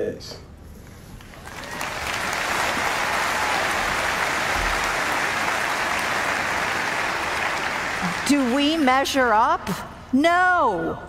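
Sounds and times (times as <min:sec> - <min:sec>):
large audience applauding: 0:01.2 - 0:08.9.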